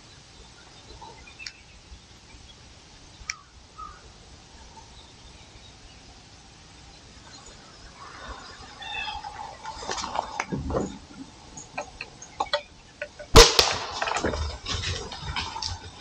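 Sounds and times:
faint bird calls: 0:03.2 - 0:05.8, 0:06.8 - 0:13.3.

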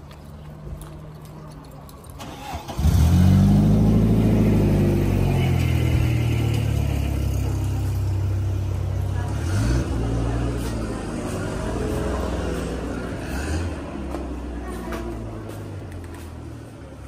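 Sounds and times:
car engine starting and running: 0:02.2 - 0:14.4.

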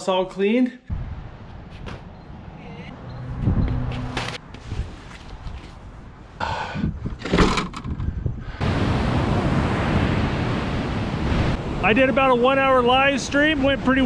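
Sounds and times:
wind on microphone: 0:03.2 - 0:05.6, 0:06.4 - 0:11.8
knocks and rustling: 0:07.0 - 0:08.1
ocean surf: 0:08.6 - 0:14.0.

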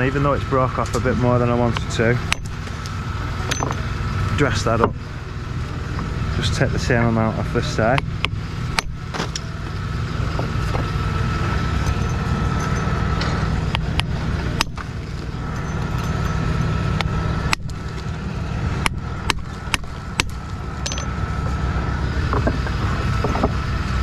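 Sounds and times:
engine running: 0:00.0 - 0:24.0
hammer striking stone: 0:03.5 - 0:03.8, 0:08.8 - 0:09.0, 0:14.0 - 0:14.8, 0:17.5 - 0:17.8, 0:18.8 - 0:21.1.

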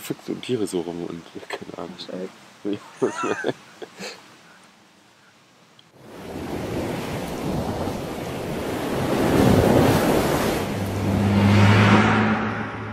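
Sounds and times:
rush of surf-like noise: 0:06.0 - 0:12.9
low steady drone: 0:10.7 - 0:12.9.

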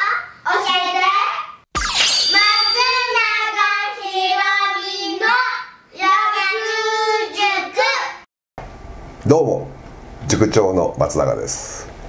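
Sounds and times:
child singing: 0:02.3 - 0:08.2.

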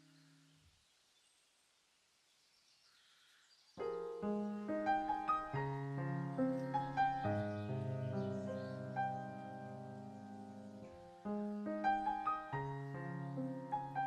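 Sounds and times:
piano music: 0:03.8 - 0:14.0.

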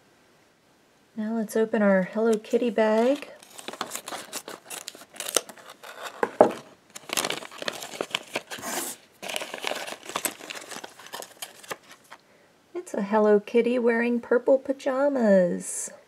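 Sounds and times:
plastic packet crinkling: 0:02.2 - 0:12.2
scissors snipping plastic: 0:03.0 - 0:11.8.

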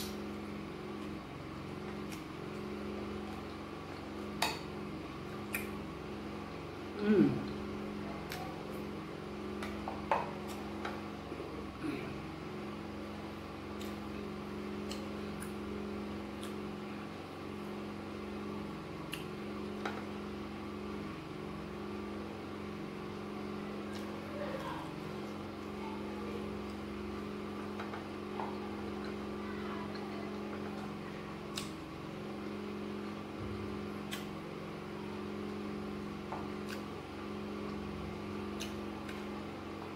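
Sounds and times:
steady machine hum: 0:00.0 - 0:39.9.

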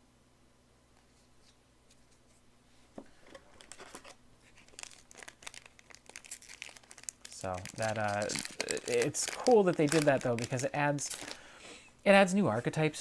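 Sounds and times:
wrapper crinkling and tearing: 0:03.5 - 0:11.5.

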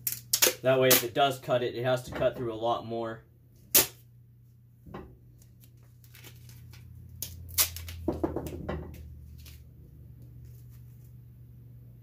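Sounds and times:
tape crinkling: 0:00.0 - 0:01.1, 0:05.3 - 0:08.1, 0:09.2 - 0:11.2
tape ripping: 0:00.0 - 0:01.1, 0:03.7 - 0:04.0, 0:05.6 - 0:08.1
low steady hum: 0:00.0 - 0:12.0.

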